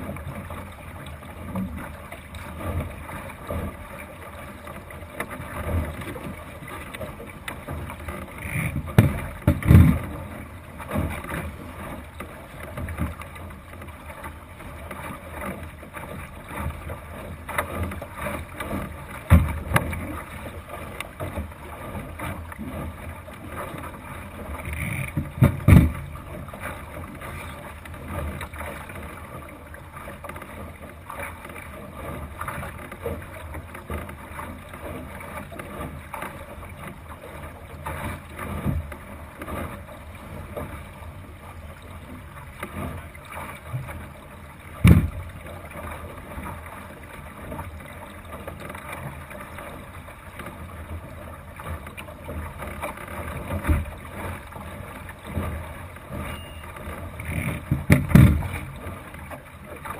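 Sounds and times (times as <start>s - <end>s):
water rushing along a boat hull: 0.0s - 59.9s
soft knocks: 44.8s - 45.2s.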